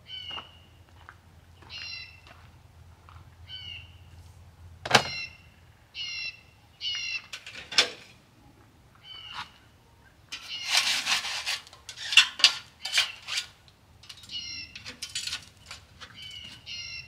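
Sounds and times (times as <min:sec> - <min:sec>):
bird calling: 0:00.0 - 0:00.8, 0:01.6 - 0:02.3, 0:03.4 - 0:04.2, 0:04.9 - 0:07.8, 0:08.9 - 0:11.2, 0:14.1 - 0:17.0.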